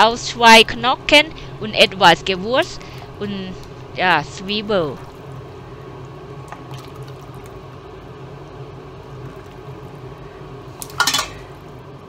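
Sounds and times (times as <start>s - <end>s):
steady background hum: 0.0s - 12.0s
broth splashing into bowl: 6.0s - 7.6s.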